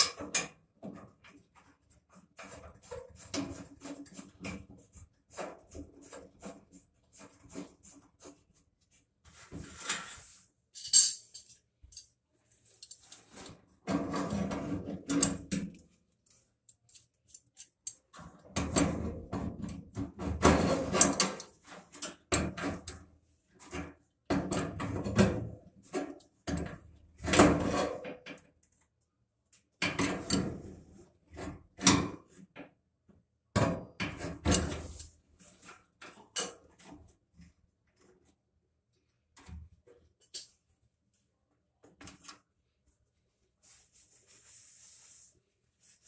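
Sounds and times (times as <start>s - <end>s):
metal parts clattering and scraping: 9.7s - 13.4s.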